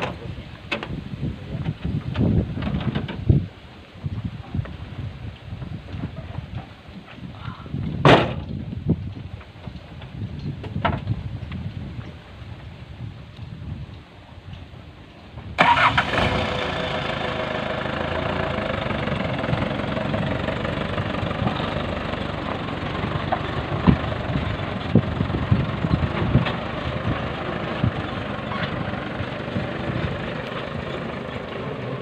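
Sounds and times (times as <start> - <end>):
diesel engine starting and running: 15.6 - 32.0.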